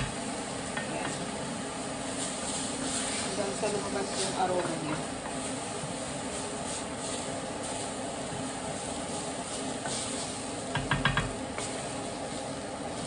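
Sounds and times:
onion sizzling in a pan: 0.0 - 13.0
wooden spatula stirring: 2.0 - 13.0
spatula knocking against pan: 10.7 - 11.3.

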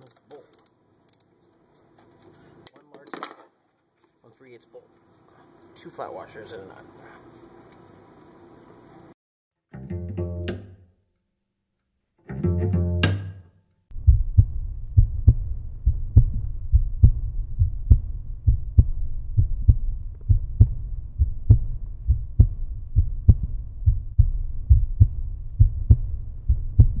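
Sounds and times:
heavy low beat: 13.9 - 27.0
steady bass line: 13.9 - 27.0.

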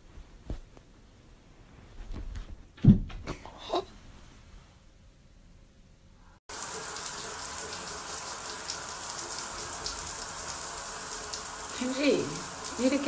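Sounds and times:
water running from a tap: 6.5 - 13.0.

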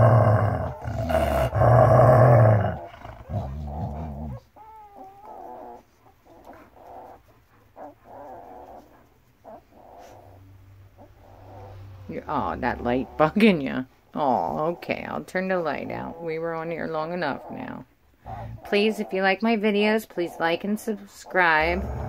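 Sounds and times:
dog growling: 0.0 - 10.4, 21.4 - 22.0
dog whining: 0.0 - 11.8.

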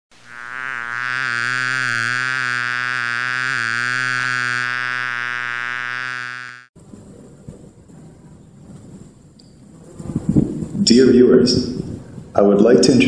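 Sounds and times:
cartoon bee buzzing: 0.1 - 6.7.

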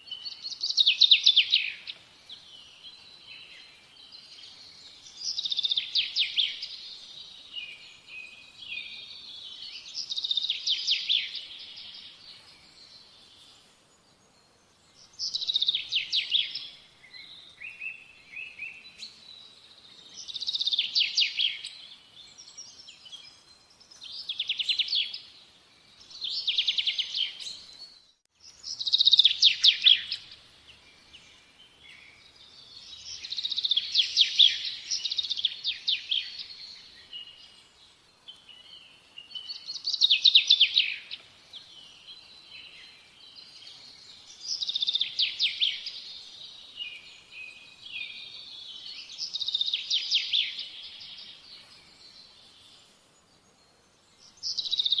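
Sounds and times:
soft bird chirping: 0.0 - 55.0
songbird trilling: 28.7 - 30.4.

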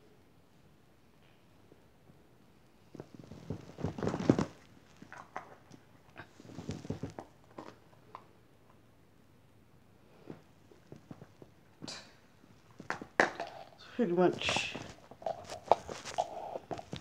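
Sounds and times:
rustling and clicks of handling: 2.9 - 8.8, 10.3 - 17.0.

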